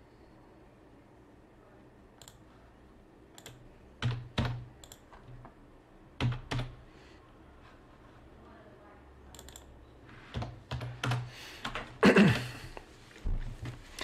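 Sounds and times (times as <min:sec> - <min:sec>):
keyboard keys clicking: 0:06.2 - 0:06.7, 0:09.4 - 0:09.7, 0:10.3 - 0:11.9.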